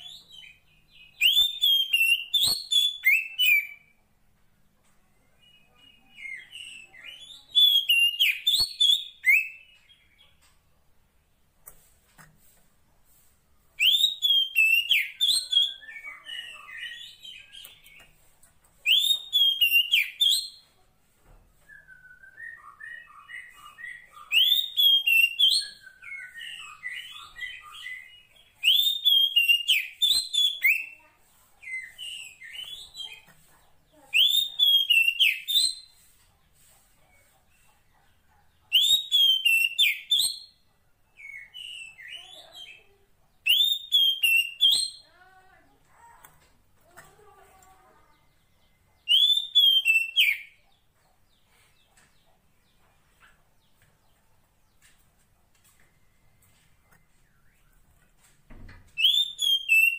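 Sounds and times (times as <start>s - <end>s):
bird whistled call: 59.0s - 59.9s.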